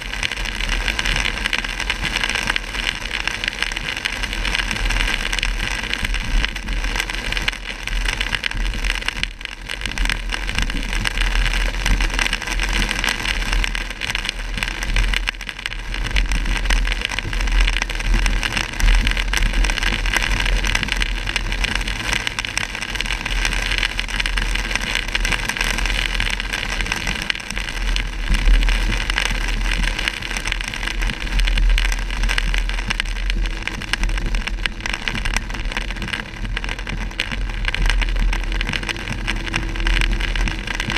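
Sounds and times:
rain on a car: 0.0 - 40.9
road and engine rumble: 17.8 - 40.9.

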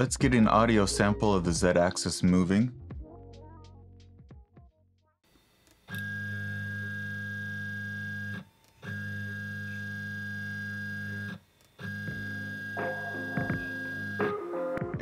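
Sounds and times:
stepper motors humming and whining: 5.3 - 14.3.

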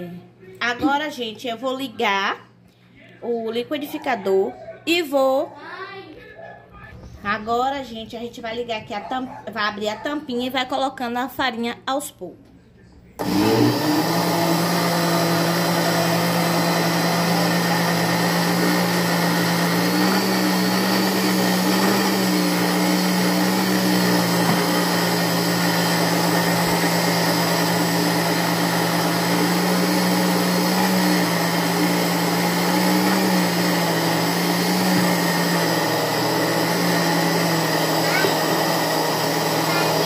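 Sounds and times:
blender motor running: 13.2 - 40.0.

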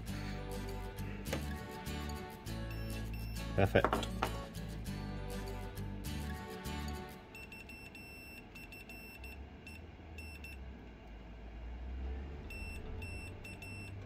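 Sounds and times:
multimeter continuity beeps: 2.7 - 3.6, 7.3 - 10.6, 12.5 - 14.0.

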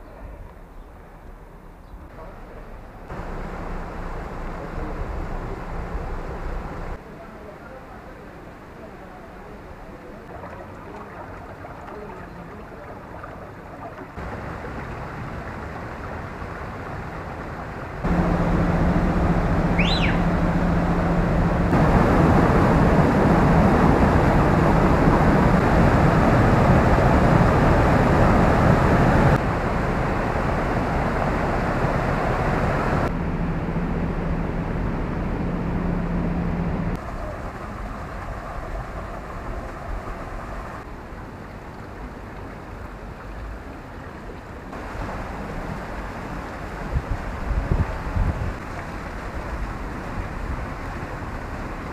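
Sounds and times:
water rushing over weirs: 2.7 - 33.2, 36.6 - 51.9
bird chirp: 19.7 - 20.4.

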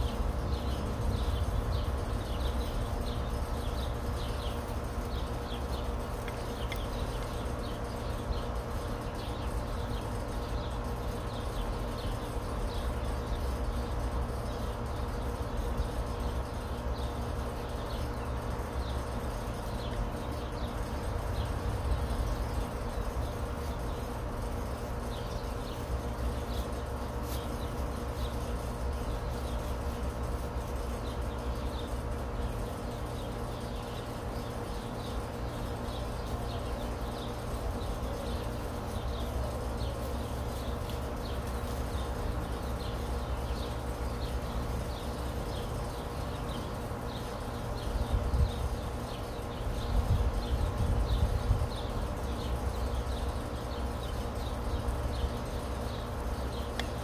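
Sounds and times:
steady low rumble: 0.0 - 9.0.

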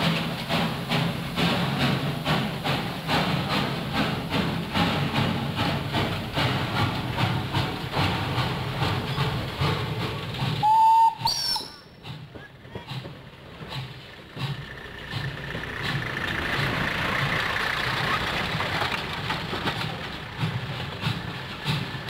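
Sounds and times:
steam locomotive chuffing: 0.0 - 22.0
high steam whistle: 10.6 - 12.0.

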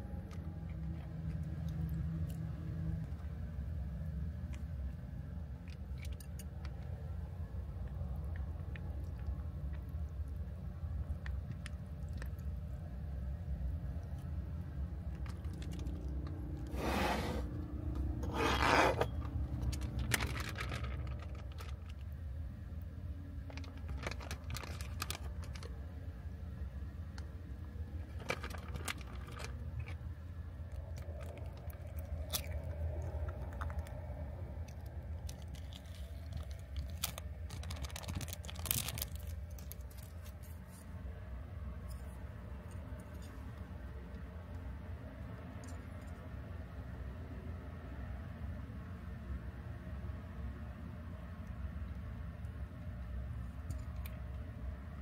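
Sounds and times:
crinkling rustles: 15.0 - 16.8, 18.0 - 22.3, 23.4 - 25.9, 28.0 - 41.0.

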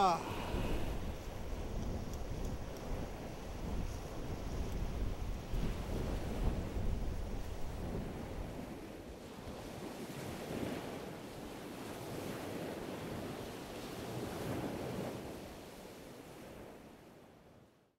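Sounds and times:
wind buffeting microphone: 0.0 - 15.8
waves washing: 0.0 - 16.8.

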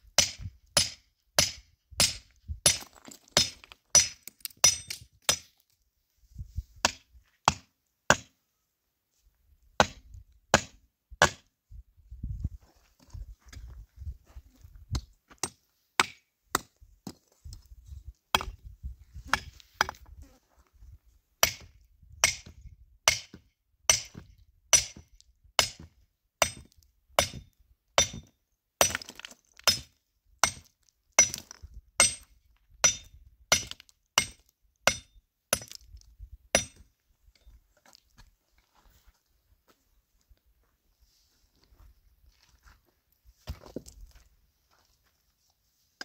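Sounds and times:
hammer striking stone: 0.2 - 5.4, 6.8 - 8.3, 9.8 - 11.5, 15.4 - 16.7, 21.4 - 35.8, 36.6 - 36.8.

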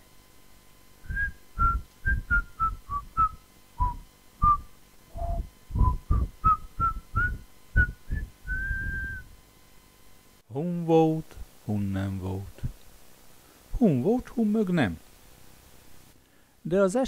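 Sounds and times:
person whistling a tune: 1.0 - 9.3.

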